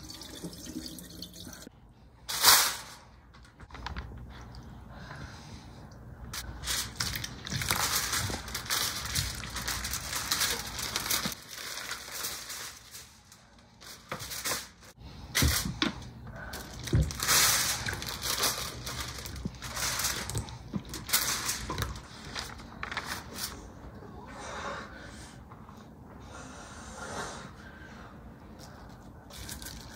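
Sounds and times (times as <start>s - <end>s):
paper crinkling and rustling: 6.4s - 15.8s, 16.6s - 23.7s.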